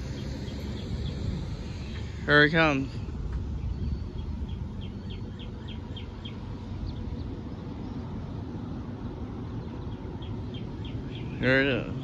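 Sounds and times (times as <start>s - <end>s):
steady low rumble: 0.0s - 12.0s
songbird whistling: 3.6s - 7.1s, 9.7s - 11.4s.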